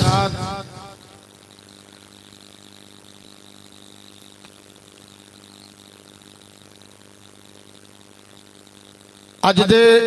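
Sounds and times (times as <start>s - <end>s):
loudspeaker hiss: 0.0s - 2.0s, 9.2s - 10.0s
low electrical hum: 0.0s - 10.0s.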